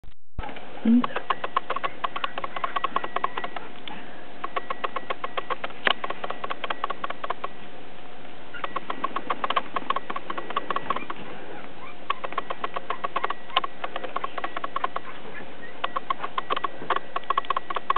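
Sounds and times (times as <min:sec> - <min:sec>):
puppies play-fighting clicks and scuffles: 0:00.4 - 0:07.6, 0:08.6 - 0:17.9.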